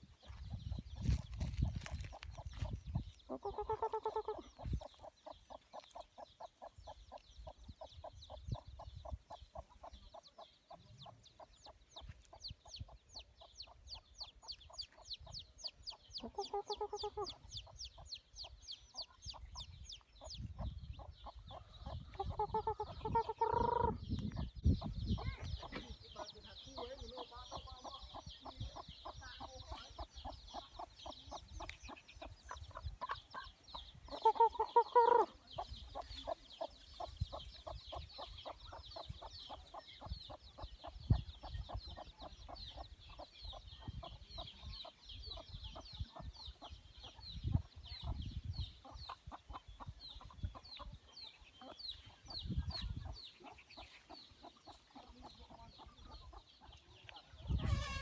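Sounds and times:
chickens clucking: 0:00.0 - 0:58.0
chicken drawn-out call: 0:57.5 - 0:58.0.

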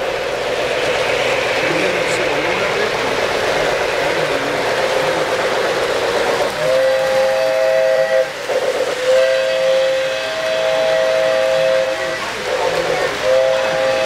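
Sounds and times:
model trains rumbling on track: 0:00.0 - 0:14.0
model train whistle chord: 0:06.6 - 0:14.0.

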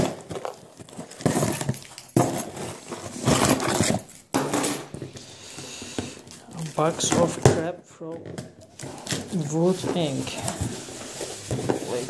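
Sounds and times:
cardboard box rustling and scraping: 0:09.3 - 0:12.0.

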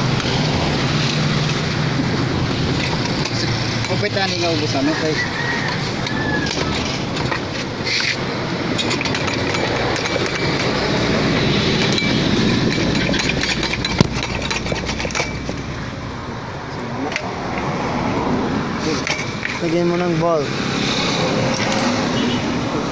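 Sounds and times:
vehicle rumble: 0:00.0 - 0:22.9
metal clinks and knocks: 0:06.4 - 0:15.7.

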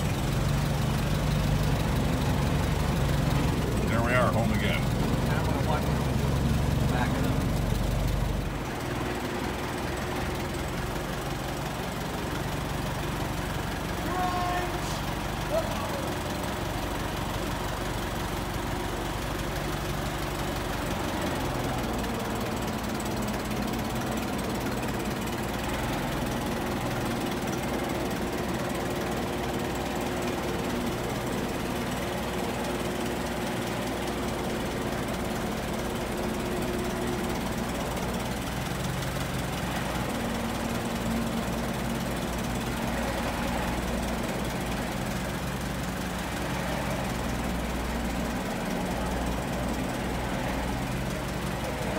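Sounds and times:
old car engine running: 0:00.0 - 0:51.9.

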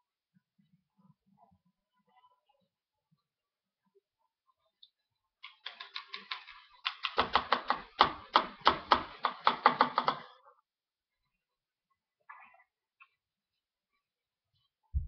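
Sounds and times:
paintbrushes tapping plastic cup: 0:05.4 - 0:10.3.

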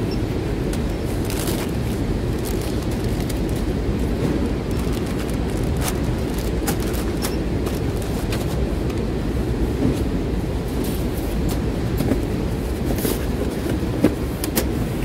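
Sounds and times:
machinery low rumble: 0:00.0 - 0:15.0
paper bags crinkling: 0:00.8 - 0:08.7.

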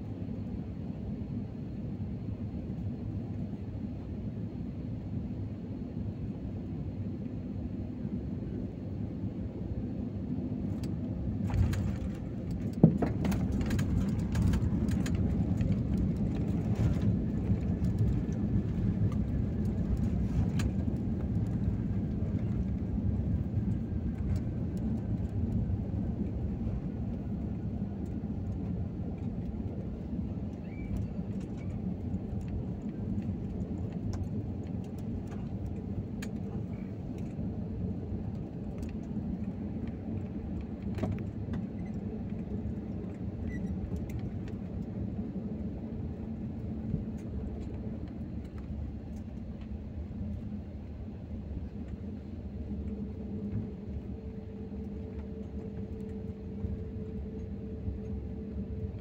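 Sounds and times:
wheels and engines rumbling: 0:06.7 - 0:59.0.

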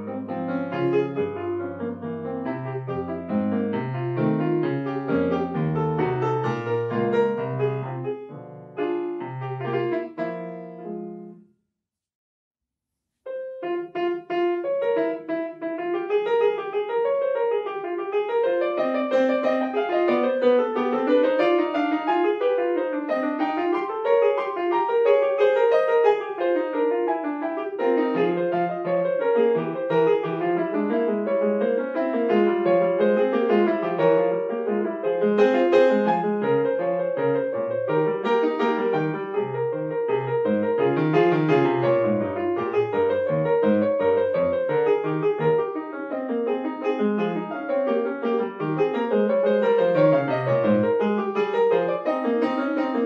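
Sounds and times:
solo piano piece: 0:00.0 - 0:11.5, 0:13.2 - 0:53.0.

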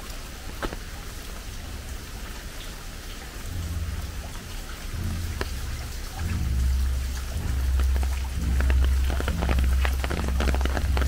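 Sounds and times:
large raindrops ticking: 0:00.0 - 0:11.0
steady rain: 0:00.0 - 0:11.0
deep low rumble: 0:03.5 - 0:11.0.

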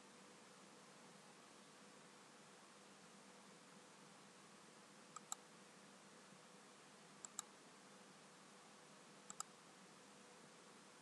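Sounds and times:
faint steady hiss and hum: 0:00.0 - 0:11.0
sharp double clicks: 0:05.2 - 0:05.4, 0:07.2 - 0:07.5.

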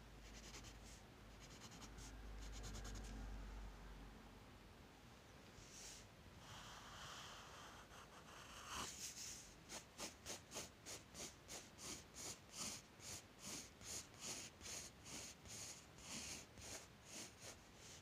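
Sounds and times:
pencil scratching on paper: 0:00.4 - 0:00.8, 0:06.8 - 0:18.0.

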